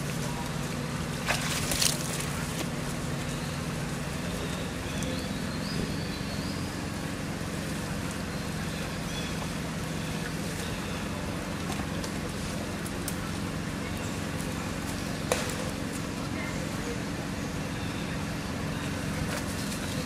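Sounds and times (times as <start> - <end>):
water splashing: 0.0 - 2.8
low motor hum: 0.0 - 20.0.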